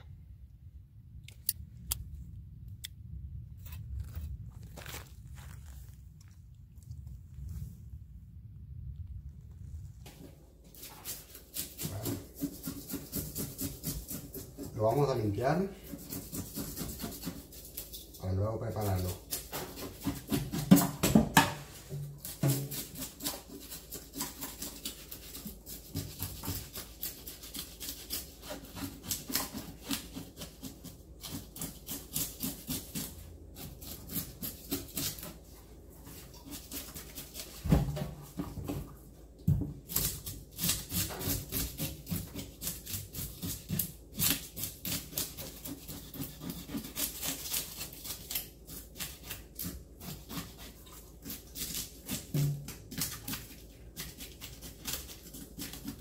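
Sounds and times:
knife scraping fish scales: 10.7 - 18.2, 22.2 - 37.7, 39.9 - 56.0.

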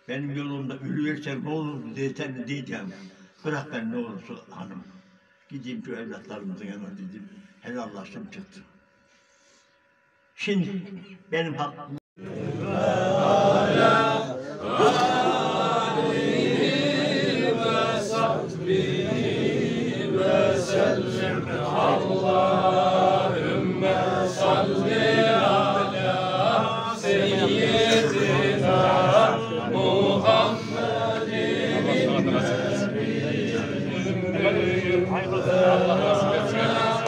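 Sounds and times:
men chanting together: 12.2 - 37.0.

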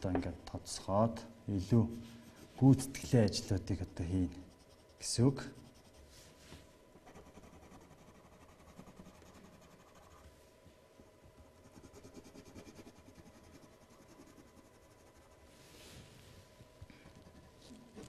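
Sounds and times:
pencil scratching on paper: 7.0 - 10.2, 11.6 - 15.5.

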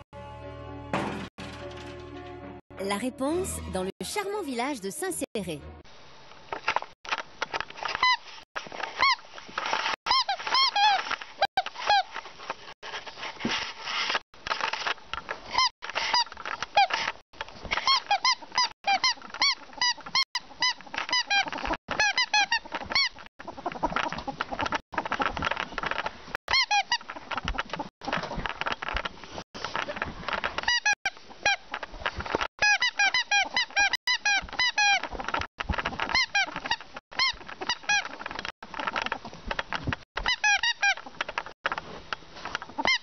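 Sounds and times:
ferret chuckling clucks: 21.5 - 24.8.

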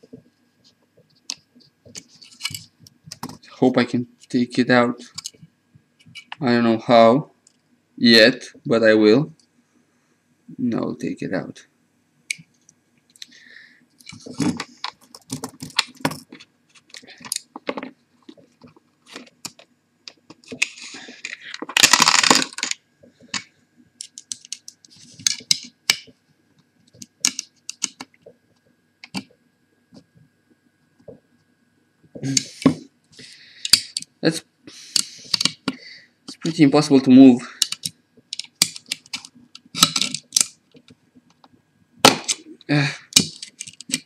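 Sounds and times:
small metal parts clattering: 20.5 - 22.8.

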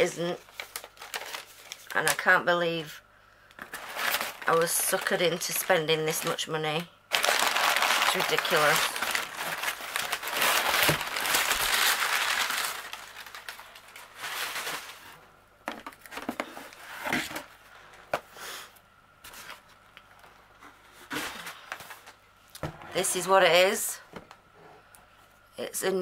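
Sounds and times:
packing paper crumpling: 0.4 - 2.3, 3.6 - 6.4, 7.1 - 15.2.

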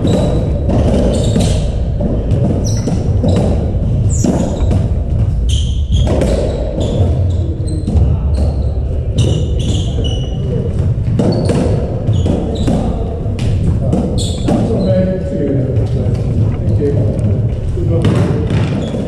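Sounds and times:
shoes squeaking on floor: 0.0 - 19.0
steady low rumble: 15.2 - 18.1.

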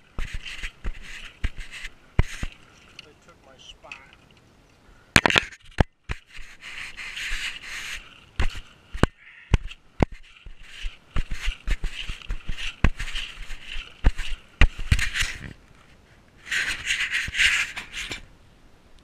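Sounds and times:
scraping and rustling: 0.0 - 4.4, 5.2 - 18.3
camera handling knocks and clicks: 5.1 - 6.2.

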